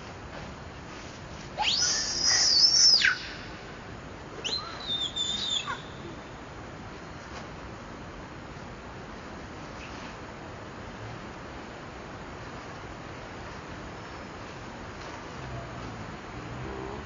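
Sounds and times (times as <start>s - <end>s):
baby monkey screaming: 1.6s - 3.4s, 4.4s - 6.0s.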